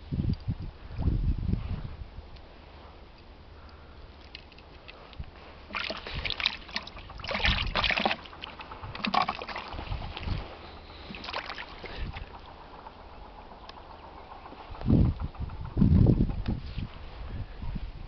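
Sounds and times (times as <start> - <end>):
water splashing into plastic bucket: 5.7 - 10.2, 11.1 - 12.3.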